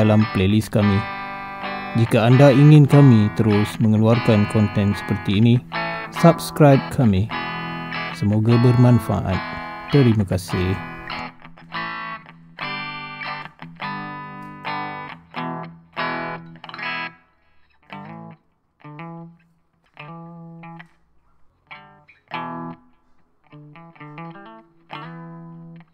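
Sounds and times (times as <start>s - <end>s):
plucked chords and notes: 0.0s - 25.9s.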